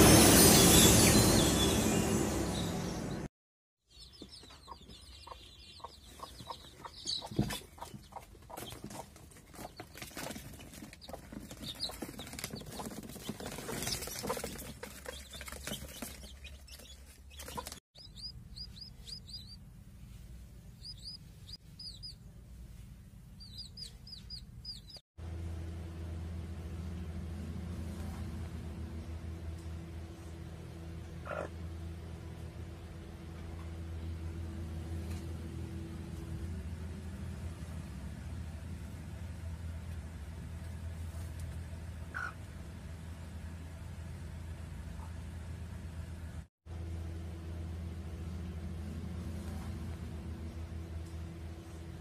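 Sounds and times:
chicks peeping: 0:03.9 - 0:19.6, 0:20.7 - 0:22.3, 0:23.4 - 0:25.0, 0:31.2 - 0:31.5, 0:42.1 - 0:42.4
hen flapping wings: 0:08.5 - 0:17.8
low steady hum: 0:18.0 - 0:52.0.

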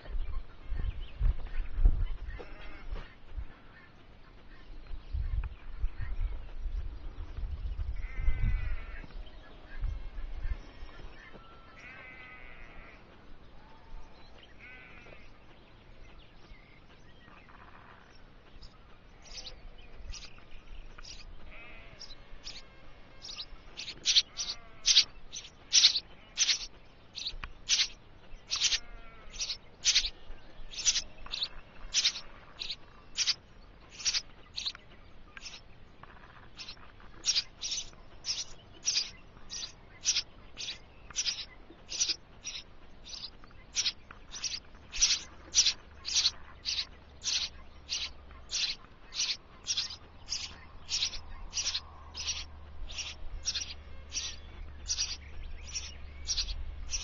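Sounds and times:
nestlings begging calls: 0:02.1 - 0:03.9, 0:07.9 - 0:15.4, 0:16.1 - 0:57.0
drawn-out animal calls: 0:11.2 - 0:14.0, 0:14.6 - 0:15.4, 0:21.0 - 0:30.1, 0:30.7 - 0:34.8, 0:35.4 - 0:57.0.

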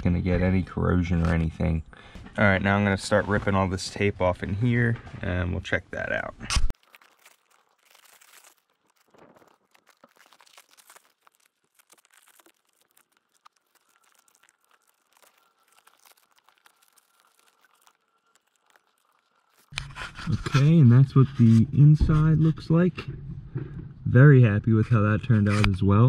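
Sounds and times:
tape tearing and crackling: 0:06.7 - 0:20.3.

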